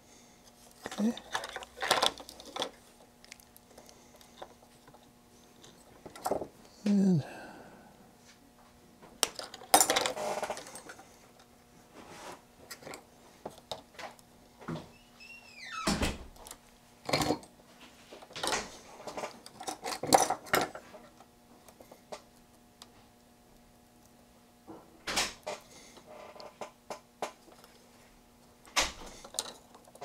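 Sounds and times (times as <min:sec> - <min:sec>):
faint steady hum: 0:00.0 - 0:30.0
tools and metal parts clinking: 0:00.8 - 0:02.8, 0:09.3 - 0:11.0, 0:18.4 - 0:20.8, 0:29.2 - 0:30.0.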